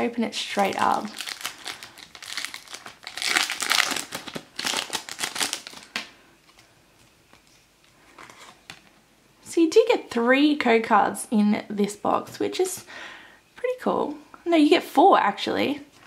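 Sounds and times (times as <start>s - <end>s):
foil wrapper tearing and crinkling: 0.5s - 6.2s.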